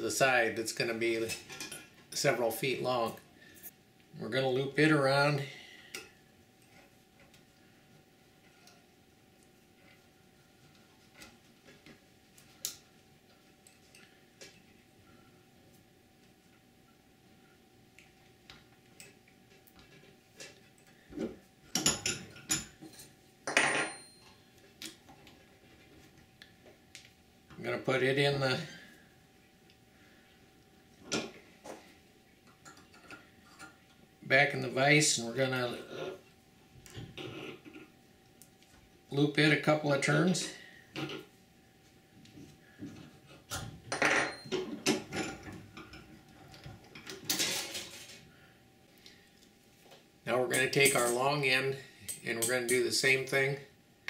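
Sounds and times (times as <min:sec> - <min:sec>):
wire clinking and scraping on metal: 0:18.5 - 0:24.4, 0:32.5 - 0:34.0, 0:50.5 - 0:53.2.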